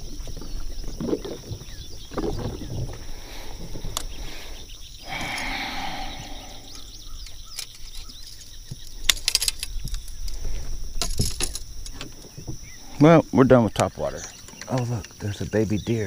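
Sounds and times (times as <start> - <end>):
high insect drone: 0.0 - 16.0
bird chirps: 4.1 - 9.1.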